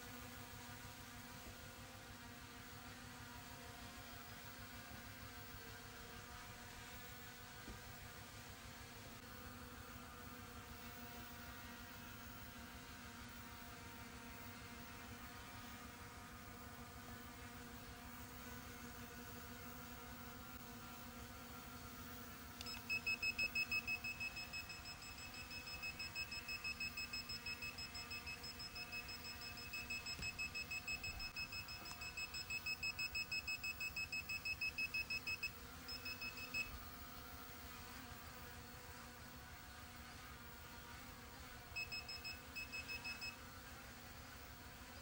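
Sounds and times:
drone motors humming: 0:21.8 - 0:36.8
high electronic beeps: 0:22.7 - 0:36.7.

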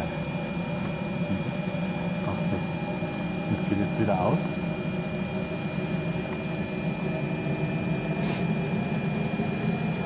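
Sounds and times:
turbine engine whining: 0:00.0 - 0:10.0.

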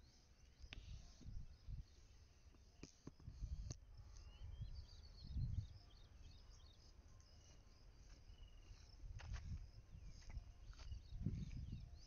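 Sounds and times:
small birds twittering: 0:00.0 - 0:12.0
wind rumble on microphone: 0:00.7 - 0:02.1, 0:03.1 - 0:06.9, 0:07.8 - 0:12.0.

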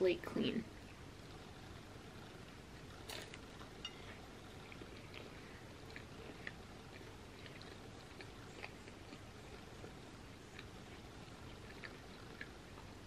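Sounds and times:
chewing with wet mouth clicks: 0:03.1 - 0:13.0.

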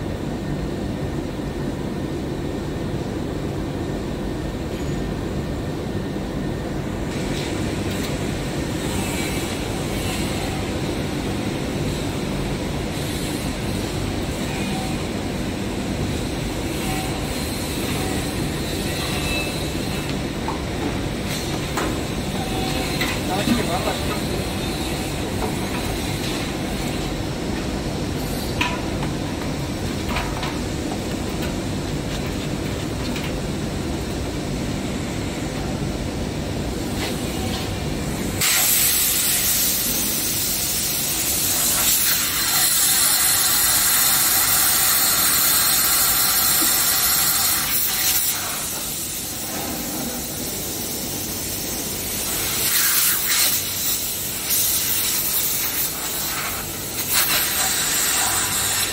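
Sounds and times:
compressed air hissing from hose: 0:38.4 - 0:58.9.

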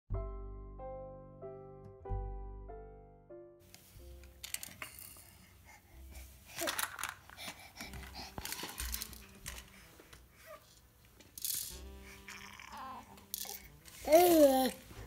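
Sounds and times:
plastic toys clicking and rattling: 0:04.2 - 0:05.4, 0:06.5 - 0:10.2, 0:11.2 - 0:14.8.

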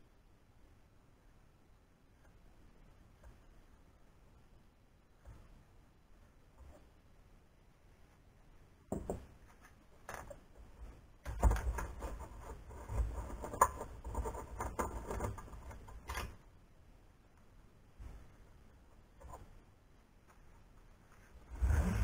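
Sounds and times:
rustling and scraping: 0:07.9 - 0:16.5, 0:18.0 - 0:22.0.

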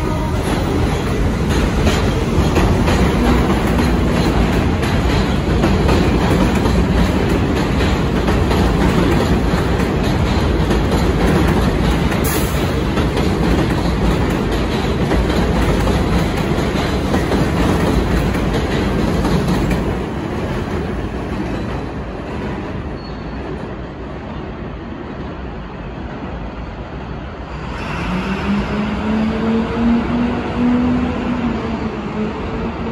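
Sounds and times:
subway train rumbling on steel track: 0:00.0 - 0:32.9.

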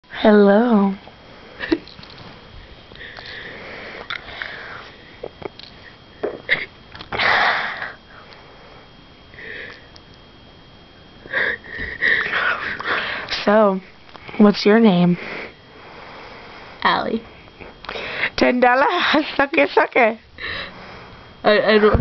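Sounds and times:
person sniffing and breathing: 0:03.0 - 0:05.0.

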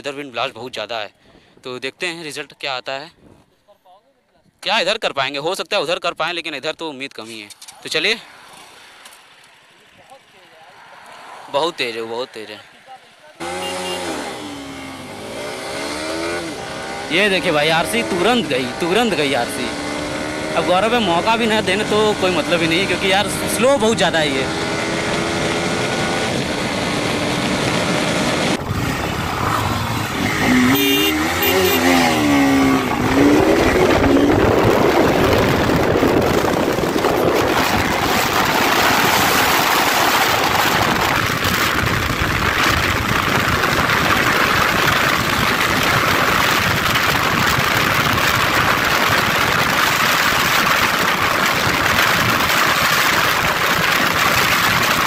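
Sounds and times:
motorcycle engine revving: 0:13.4 - 0:55.0
wind rushing over microphone: 0:22.9 - 0:55.0.

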